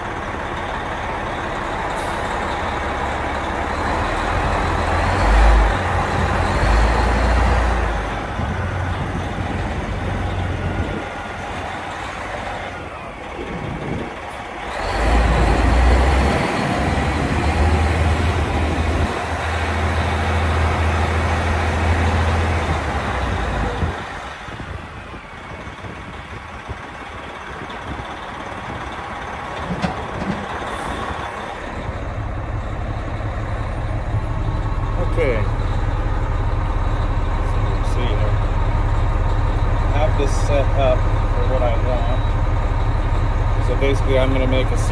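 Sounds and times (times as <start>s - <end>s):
diesel truck engine: 0.0s - 44.9s
road and cab noise: 0.0s - 44.9s.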